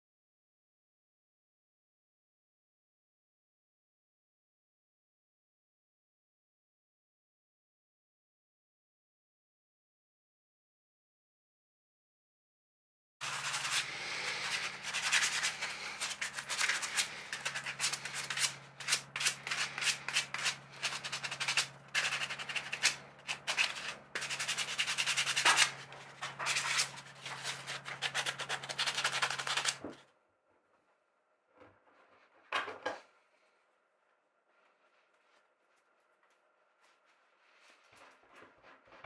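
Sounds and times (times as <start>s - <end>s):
sandpaper rubbing: 13.2s - 29.8s.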